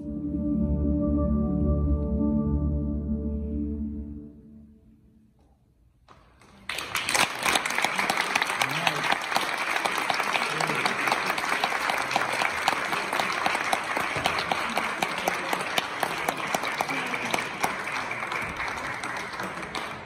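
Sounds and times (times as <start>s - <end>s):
audience applauding: 6.4s - 20.0s.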